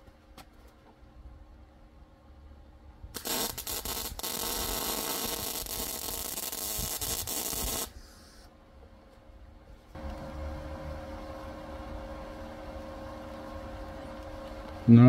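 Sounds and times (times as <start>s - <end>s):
welding arc crackling and hissing: 3.2s - 8.5s.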